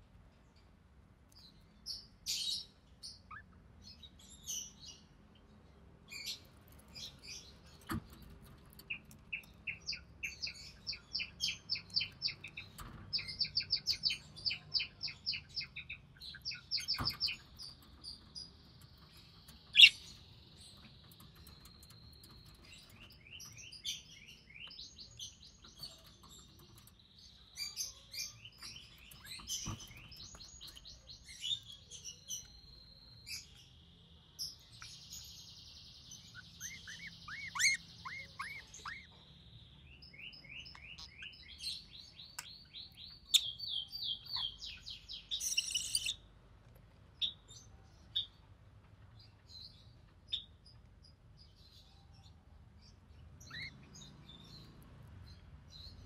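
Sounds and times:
budgerigars chirping: 8.8s - 17.8s, 19.7s - 26.9s, 36.3s - 39.2s, 40.4s - 41.6s, 43.1s - 46.2s, 53.4s - 54.7s.

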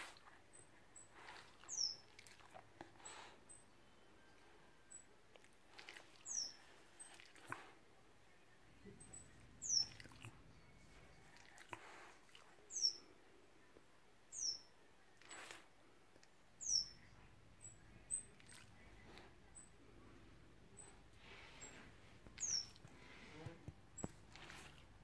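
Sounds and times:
soft high bird chirps: 0.4s - 5.2s, 5.8s - 7.6s, 8.3s - 11.7s, 12.6s - 13.2s, 14.3s - 15.7s, 16.6s - 23.2s.

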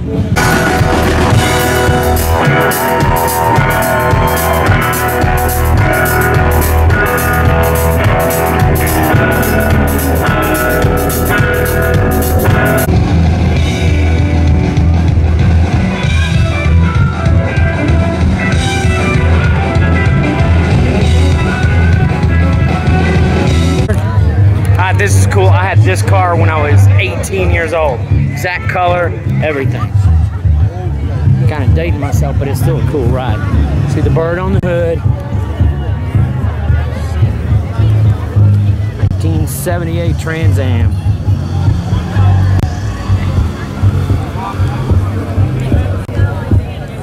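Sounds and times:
live rock band playing: 0.0s - 47.0s
drum beat: 0.4s - 15.5s.

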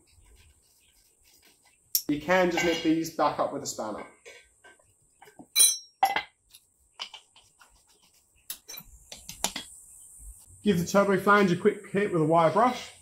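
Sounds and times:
spanner clinking on metal pipe: 5.6s - 6.3s.

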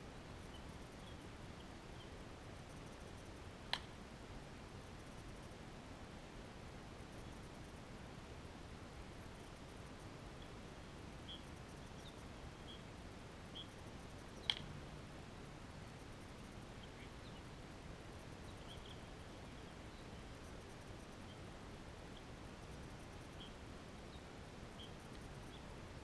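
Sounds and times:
background hiss: 0.0s - 26.0s
faint high chirps: 18.4s - 21.4s, 22.1s - 25.8s.

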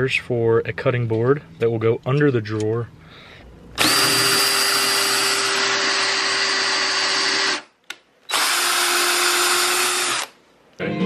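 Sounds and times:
cordless drill motor running: 3.8s - 7.7s, 8.3s - 10.4s.

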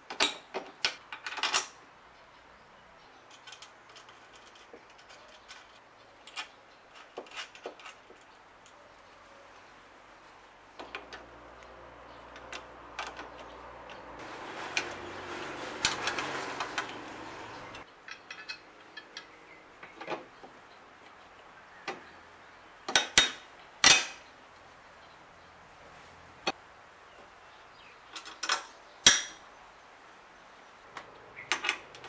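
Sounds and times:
wrenches clicking on metal bolts: 0.0s - 1.8s, 3.2s - 8.8s, 15.8s - 20.3s, 22.9s - 24.2s
metal scraping: 12.3s - 19.1s
sharp metal clanks: 22.9s - 24.2s.

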